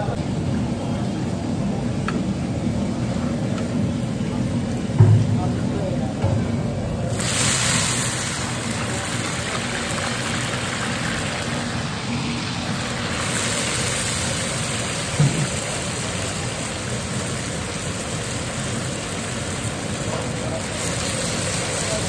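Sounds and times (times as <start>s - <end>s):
low knock: 5.0s - 5.4s
food sizzling in hot oil: 7.0s - 22.0s.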